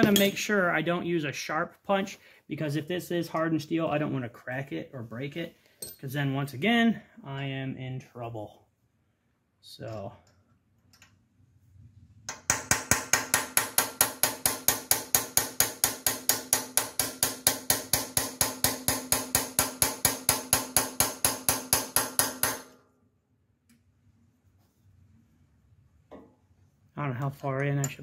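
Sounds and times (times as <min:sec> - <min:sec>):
hammer striking steel punch: 0:12.3 - 0:22.8.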